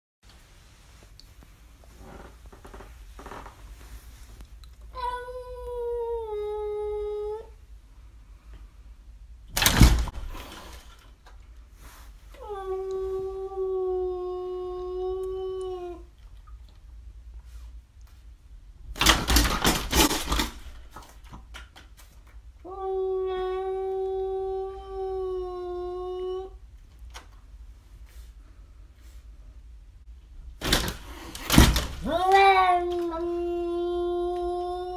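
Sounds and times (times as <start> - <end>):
cat yowling: 32.0 - 34.9.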